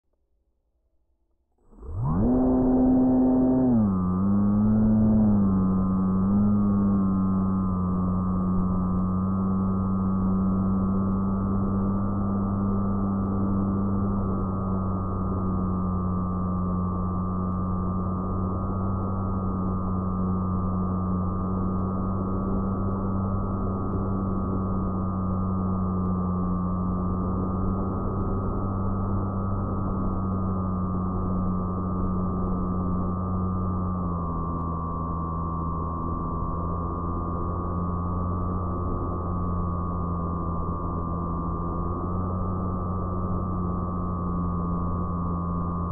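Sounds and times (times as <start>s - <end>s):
electric motor and propeller whine: 1.6s - 45.9s.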